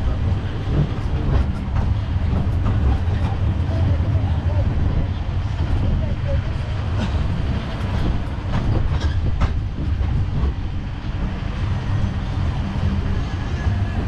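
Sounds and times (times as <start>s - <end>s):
motor and wheels rumbling: 0.0s - 14.0s
carriages rattling and knocking: 7.0s - 10.8s.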